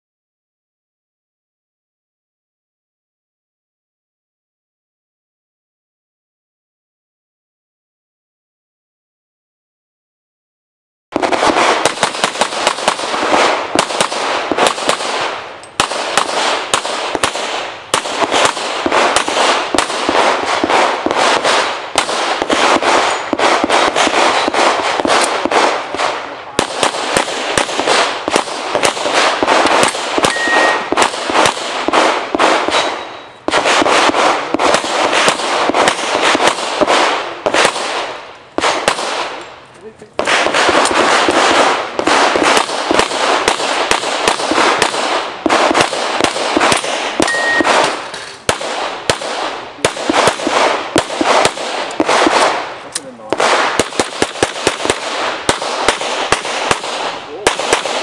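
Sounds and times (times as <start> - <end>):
rapid pistol fire: 11.2 - 39.4, 40.2 - 58.0.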